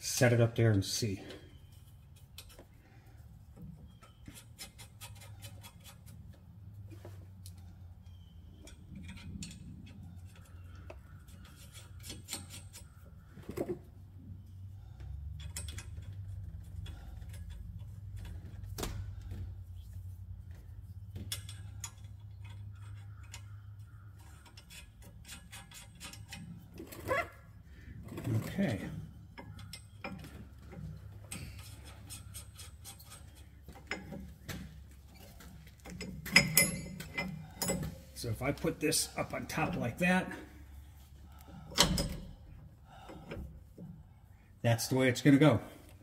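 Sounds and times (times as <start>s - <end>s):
metal nuts clicking on bolts: 8.5s - 13.2s, 15.2s - 18.8s, 20.5s - 27.2s, 28.1s - 34.4s, 35.2s - 38.4s.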